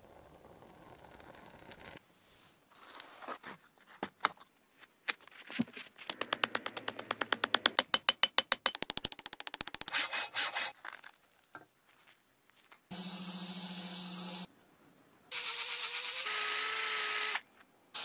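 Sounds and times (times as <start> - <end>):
sharp metallic taps: 6.1 - 10.0.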